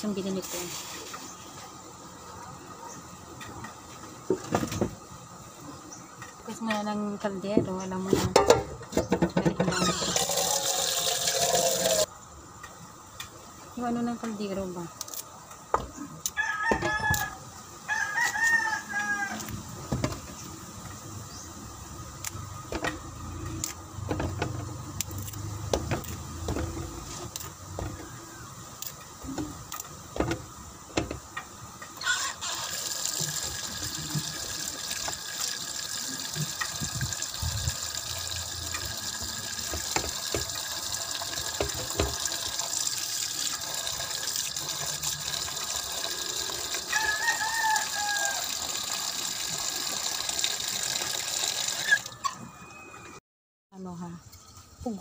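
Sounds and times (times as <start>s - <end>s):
water running into sink: 9.7s - 12.1s, 32.4s - 52.2s
rooster crowing: 16.3s - 19.6s, 32.0s - 32.8s, 46.8s - 48.8s.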